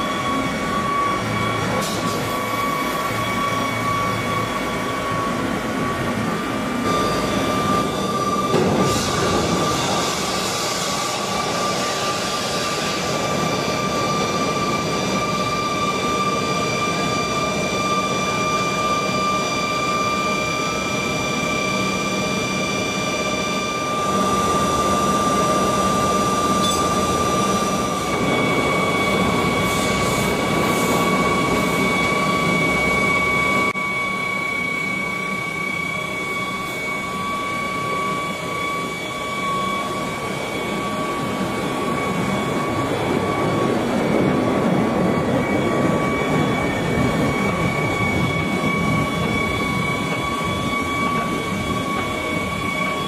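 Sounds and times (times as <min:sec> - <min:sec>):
machinery whine: 0:00.0 - 0:53.0.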